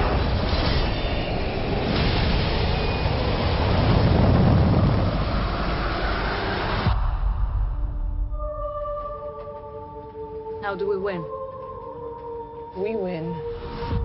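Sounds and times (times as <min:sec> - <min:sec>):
rushing wind: 0:00.0 - 0:08.3
jet engine rumble: 0:01.3 - 0:08.0.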